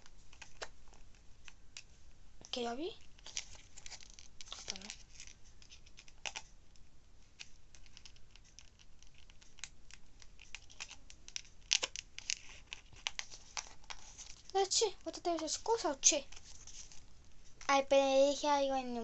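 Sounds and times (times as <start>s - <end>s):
packaging crinkling: 3.0s - 6.5s, 7.4s - 14.6s.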